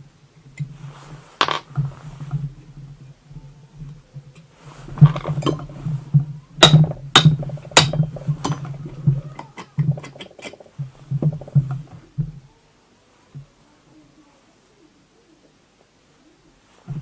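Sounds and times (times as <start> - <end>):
metal parts knocking and clinking: 6.6 - 11.7.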